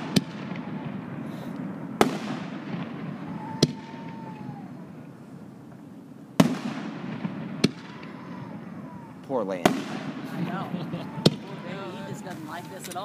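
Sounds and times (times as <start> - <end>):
firework shells bursting: 5.7 - 13.0.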